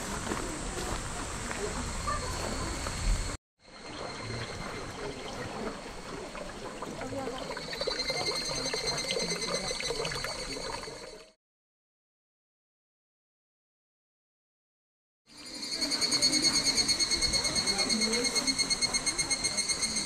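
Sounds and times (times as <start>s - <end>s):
high-pitched whine: 0.0s - 5.9s
outdoor ambience: 0.0s - 11.4s, 15.3s - 20.0s
water trickling into pool: 3.8s - 11.4s.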